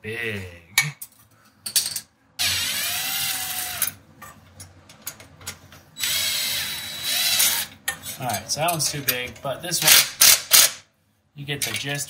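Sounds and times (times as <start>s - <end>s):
power drill running: 2.4s - 3.9s, 6.0s - 7.7s.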